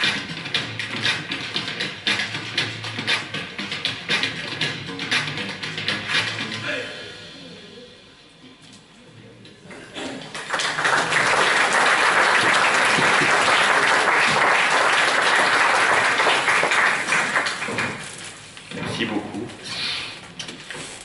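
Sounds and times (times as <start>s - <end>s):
audience applauding: 10.2s - 18.2s.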